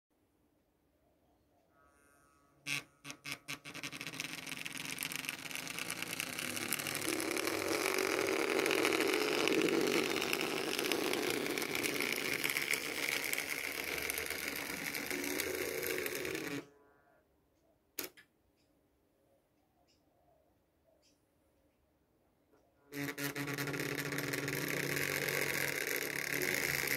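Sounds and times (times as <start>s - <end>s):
model train motor whirring: 2.7s - 16.7s, 22.9s - 26.9s
model train clicks: 3.5s - 16.6s, 23.0s - 26.9s
wheels rattling over rails: 4.6s - 16.6s.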